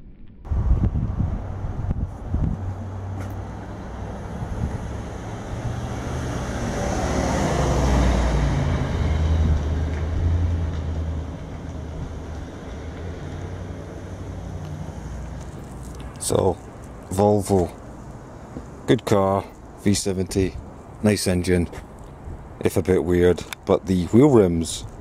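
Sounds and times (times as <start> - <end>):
vehicle passing: 0.5 - 18.9.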